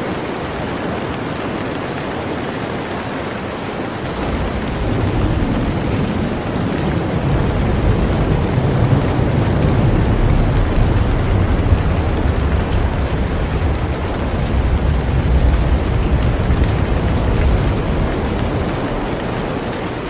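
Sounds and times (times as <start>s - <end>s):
water noise on ship's bow: 0.0s - 20.0s
wind buffeting microphone: 3.8s - 20.0s
low rumble: 4.1s - 19.7s.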